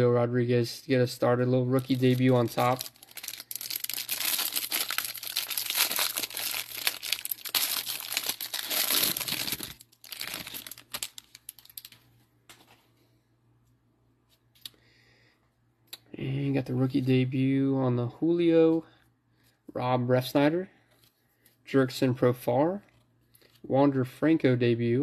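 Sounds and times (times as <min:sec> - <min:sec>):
plastic wrapper crinkling and tearing: 0:01.7 - 0:12.0.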